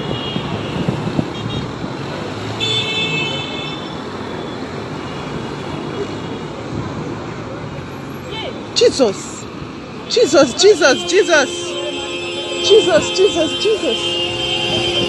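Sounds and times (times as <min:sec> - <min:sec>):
road traffic: 0:00.0 - 0:15.0
car horns honking: 0:02.6 - 0:04.0, 0:10.0 - 0:15.0.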